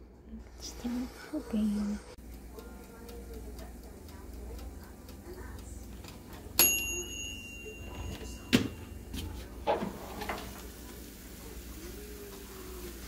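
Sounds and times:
faint oven timer ring: 0.6 - 11.6
oven door clack: 6.6 - 10.7
oven door clunks: 9.6 - 10.6.

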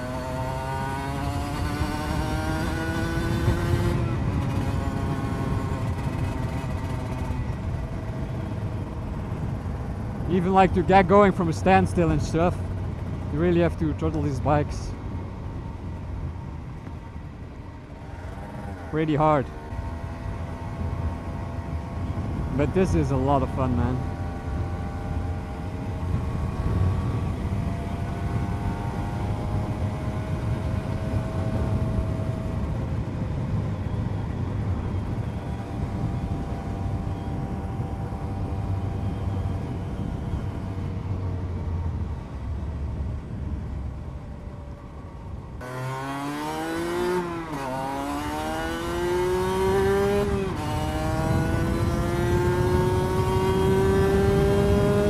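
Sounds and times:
two-stroke motorcycle engine revving: 0.0 - 9.3, 45.6 - 55.0.

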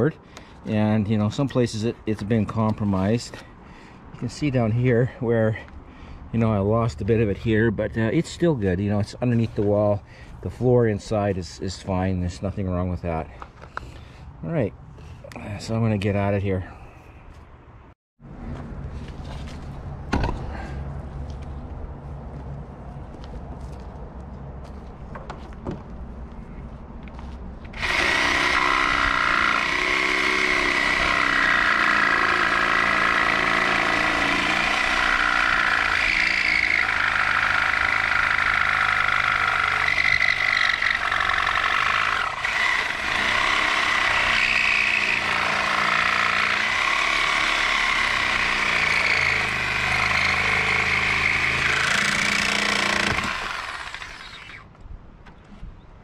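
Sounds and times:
reciprocating saw cutting: 27.7 - 54.7.

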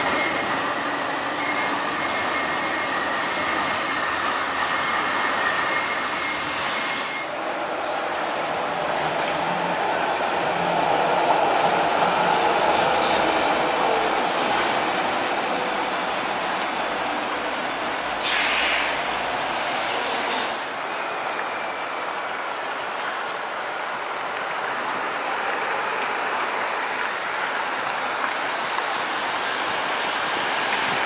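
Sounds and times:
tram wheels rumbling on rail: 0.0 - 31.0
short hiss: 18.2 - 19.0.

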